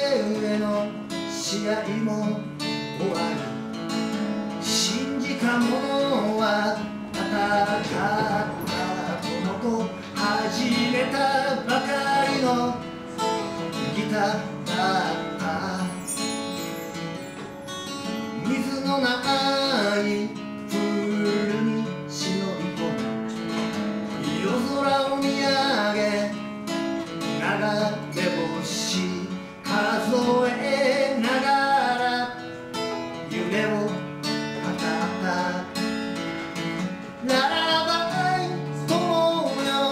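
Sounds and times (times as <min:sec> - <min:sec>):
strummed acoustic guitar: 0:00.0 - 0:39.9.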